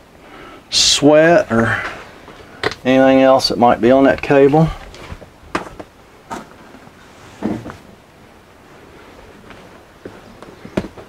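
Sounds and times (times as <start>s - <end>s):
soft knocks and rustles of handling: 4.8s - 7.9s, 9.4s - 11.0s.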